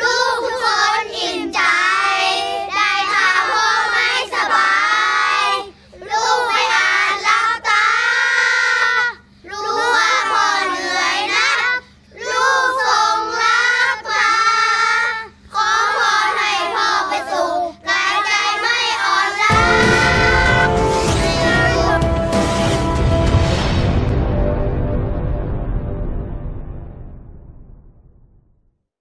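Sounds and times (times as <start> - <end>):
children singing: 0.0 - 23.0
instrumental music: 19.5 - 25.6.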